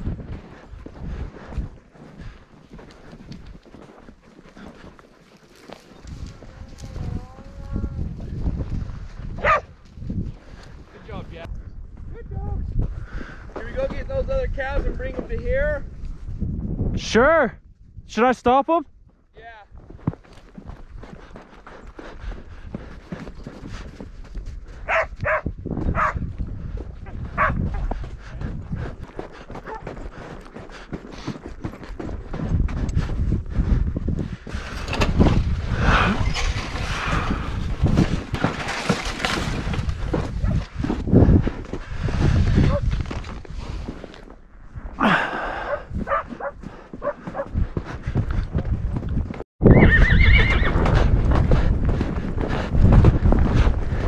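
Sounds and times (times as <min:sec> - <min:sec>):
wind rumble on microphone: 0:00.0 - 0:03.7, 0:05.9 - 0:18.1, 0:18.9 - 0:30.8, 0:31.6 - 0:54.0
hoofbeats: 0:00.0 - 0:09.6, 0:19.9 - 0:44.0, 0:45.2 - 0:54.0
mule footsteps in snow: 0:00.0 - 0:11.4, 0:19.0 - 0:35.6, 0:36.2 - 0:49.4
dog barking: 0:09.4 - 0:09.7, 0:24.8 - 0:26.2, 0:27.4 - 0:27.6, 0:29.6 - 0:29.8, 0:45.7 - 0:47.5
horse whinnying: 0:49.6 - 0:51.1.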